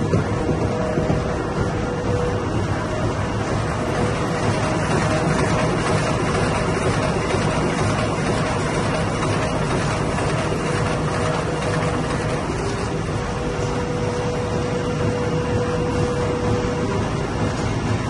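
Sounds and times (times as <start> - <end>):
steady tone: 0.0 - 7.3, 11.5 - 18.0
carton machine line running: 0.0 - 18.0.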